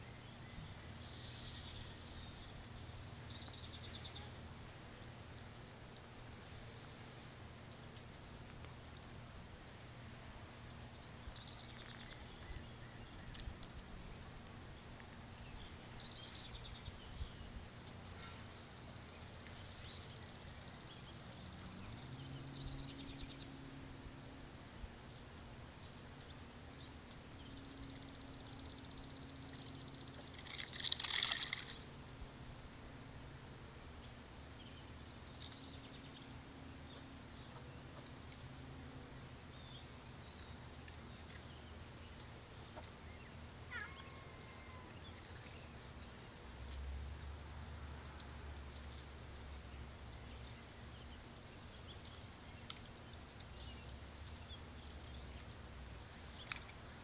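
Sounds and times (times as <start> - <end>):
low steady hum: 0.0 - 57.0
faint high-pitched calls: 18.0 - 18.6, 43.6 - 45.1.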